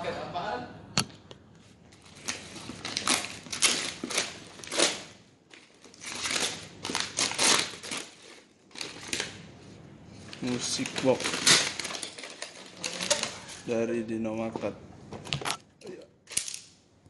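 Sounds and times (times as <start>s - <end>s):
paper tearing and crumpling: 2.0s - 9.4s, 10.3s - 13.6s.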